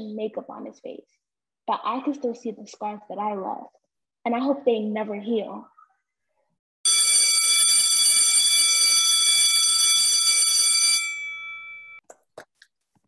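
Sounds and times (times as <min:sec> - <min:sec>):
electric bell ringing: 0:06.9 - 0:12.0.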